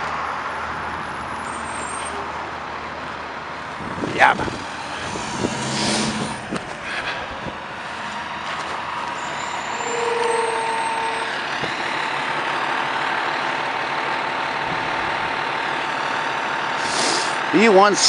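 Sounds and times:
fire truck diesel engine: 0:00.0 - 0:18.0
brief steady tone: 0:09.2 - 0:11.9.

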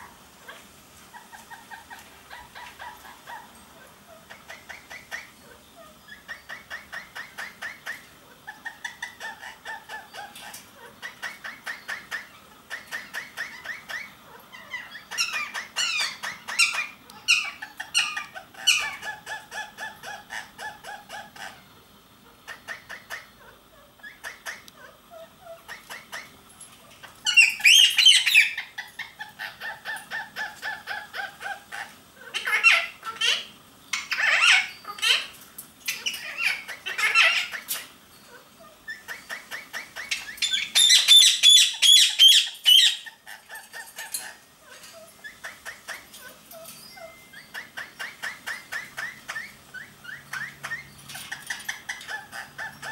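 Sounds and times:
parakeets chattering: 0:00.0 - 0:52.9
parakeet squawks: 0:00.4 - 0:26.4, 0:27.1 - 0:52.9.

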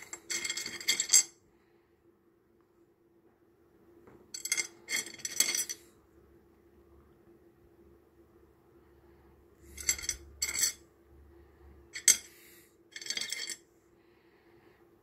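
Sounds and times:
stones clinking and clattering: 0:12.9 - 0:13.6.

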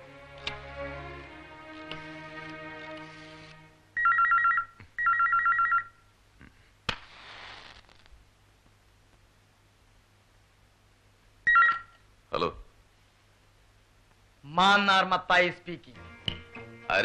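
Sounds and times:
background music: 0:00.0 - 0:04.3, 0:14.6 - 0:17.0
electronic telephone ringing: 0:04.0 - 0:06.0, 0:11.5 - 0:12.0
brief hiss: 0:06.8 - 0:08.2.

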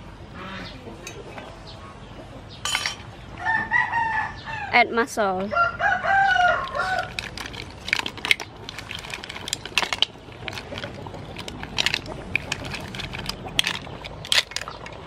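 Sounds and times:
mussel shells clattering: 0:06.1 - 0:15.0.

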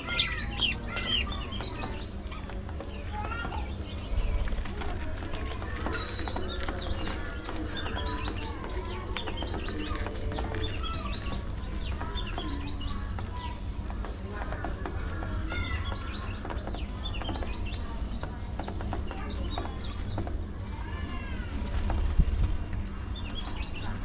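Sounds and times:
budgerigars chattering: 0:00.0 - 0:04.2, 0:05.6 - 0:20.0.

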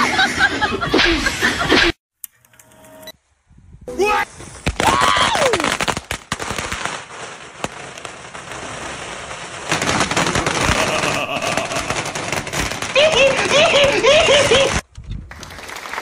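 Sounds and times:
firecrackers popping: 0:04.4 - 0:16.0.

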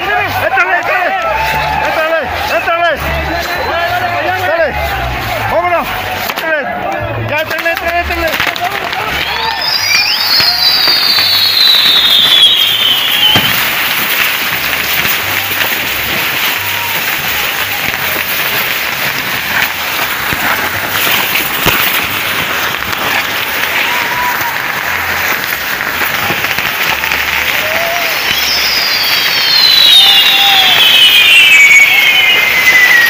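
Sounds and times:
fireworks hissing and crackling: 0:00.0 - 0:33.0
sharp crack: 0:05.2 - 0:33.0
falling firework whistle: 0:08.9 - 0:33.0.

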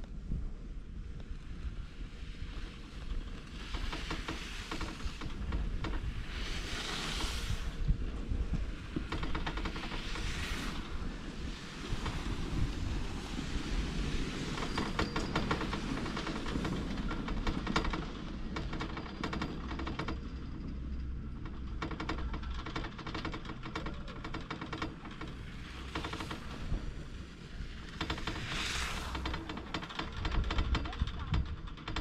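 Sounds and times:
steady low rumble: 0:04.5 - 0:32.0
chairlift rattling clicks: 0:14.6 - 0:27.1, 0:27.7 - 0:32.0.

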